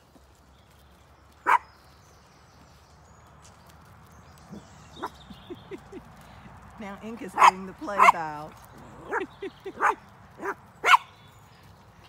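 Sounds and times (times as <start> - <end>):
small dog barking: 1.4 - 1.7, 7.4 - 8.3, 9.0 - 11.2.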